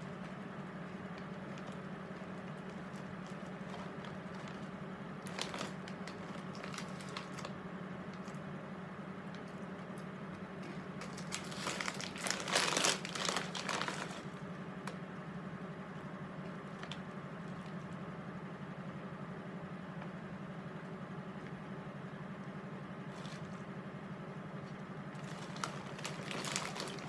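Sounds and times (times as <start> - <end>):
steady low hum: 0.0 - 27.0
plastic bag crinkling: 0.1 - 8.4, 10.6 - 14.4, 25.1 - 27.0.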